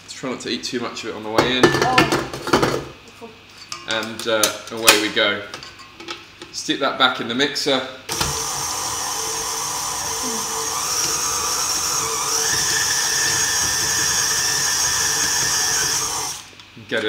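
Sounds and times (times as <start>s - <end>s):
stand mixer motor whine: 8.1s - 16.5s.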